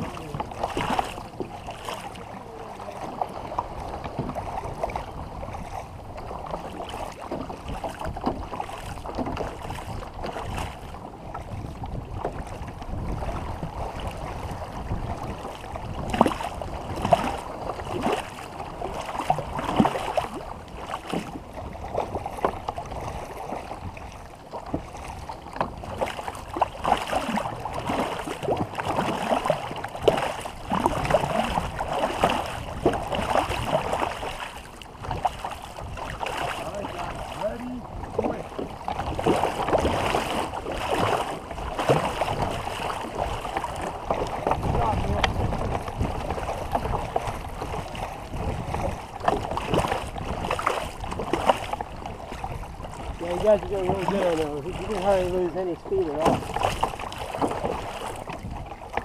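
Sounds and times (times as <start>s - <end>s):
paddles splashing water: 0.0s - 59.0s
water washing: 26.0s - 52.4s, 53.0s - 58.4s.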